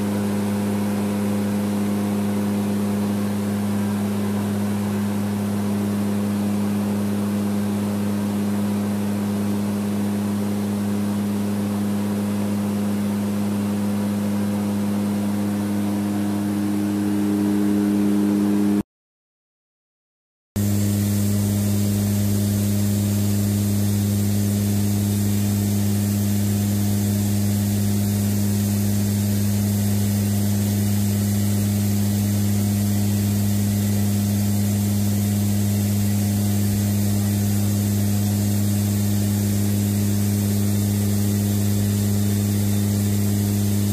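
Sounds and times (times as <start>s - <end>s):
turboprop engines droning: 0.0s - 18.8s, 20.6s - 43.9s.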